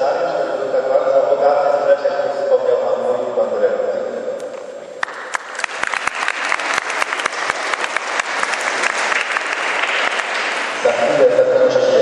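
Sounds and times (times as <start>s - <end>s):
audience applauding: 5.0s - 11.1s.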